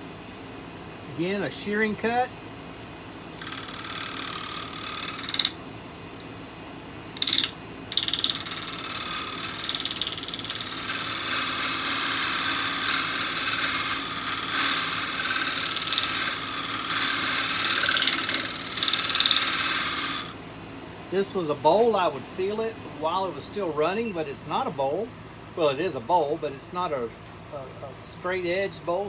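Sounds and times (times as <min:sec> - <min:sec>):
lathe gouge cutting wood: 0:03.4 - 0:05.6, 0:07.2 - 0:20.4.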